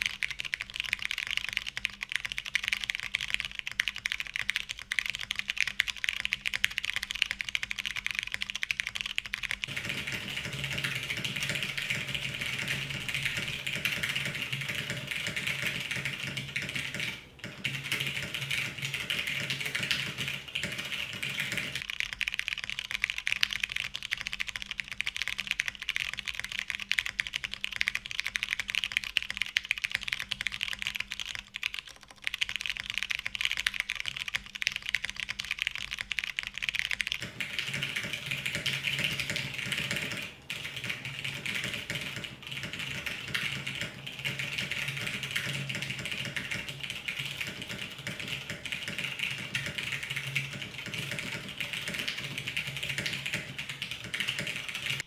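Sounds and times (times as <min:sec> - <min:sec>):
mechanical keyboard typing: 0:00.0 - 0:55.0.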